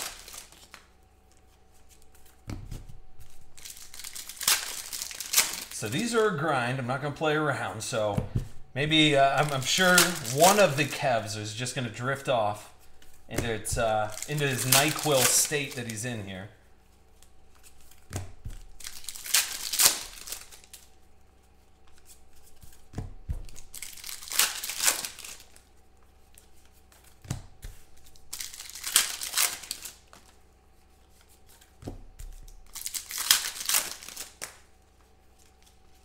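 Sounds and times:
foil packs ripped open: 0.0 - 0.8, 3.5 - 5.8, 9.1 - 11.0, 13.3 - 16.0, 18.7 - 20.8, 23.5 - 25.6, 28.2 - 30.1, 32.6 - 34.5.

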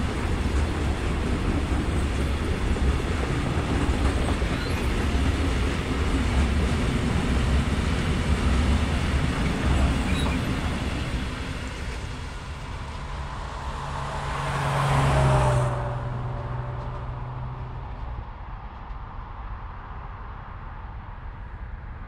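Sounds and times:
train wheels rumbling on rails: 0.0 - 19.7
road vehicle passing: 10.5 - 18.6.

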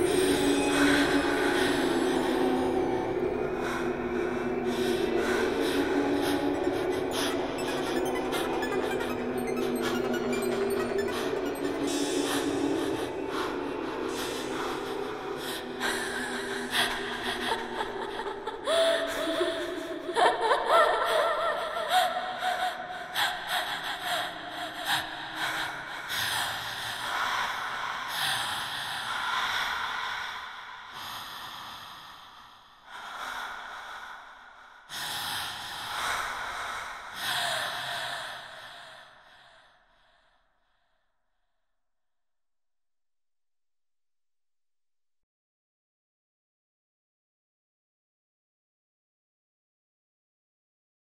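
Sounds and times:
held musical tones: 0.0 - 17.1
breathy gasping vocals: 0.0 - 20.2.

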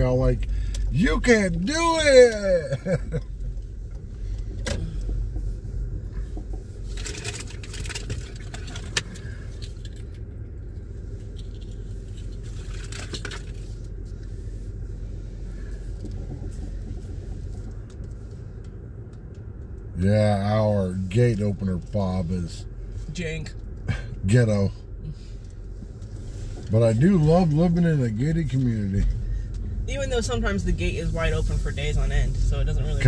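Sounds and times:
car engine low rumble: 0.0 - 33.0.

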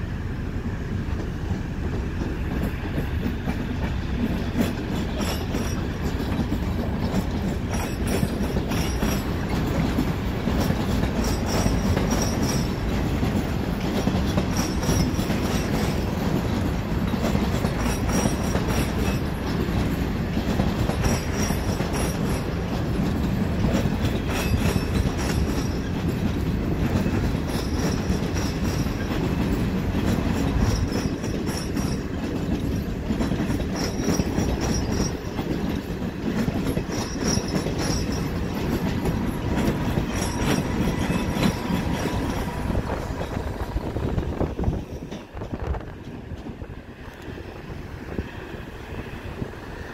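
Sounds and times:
train wheels rumbling: 0.0 - 49.9
wheels clacking over rail joints: 0.9 - 49.9
high wheel squeals: 10.6 - 16.4, 23.5 - 29.7, 33.4 - 45.1.

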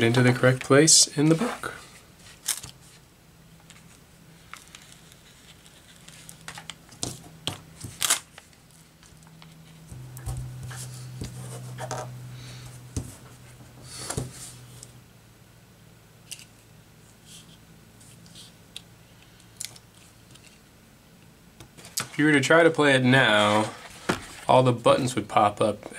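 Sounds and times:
cardboard rustling and scraping: 3.7 - 12.1, 12.8 - 14.9, 23.1 - 24.6
packing tape unwound and torn: 4.4 - 6.8, 7.8 - 9.3.

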